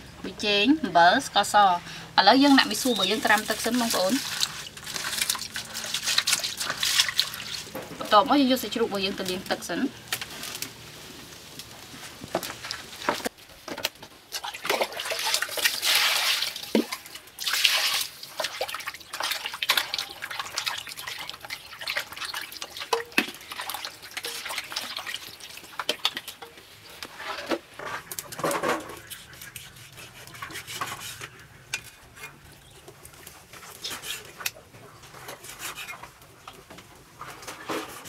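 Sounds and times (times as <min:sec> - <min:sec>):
hands rubbing meat in water: 0:02.7 - 0:07.7
water splashing and dripping: 0:03.0 - 0:08.1, 0:14.3 - 0:26.5.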